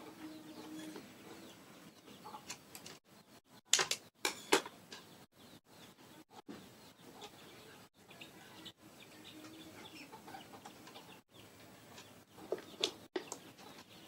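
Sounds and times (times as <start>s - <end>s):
clicks of wires and connectors: 2.4s - 3.0s, 3.7s - 5.1s.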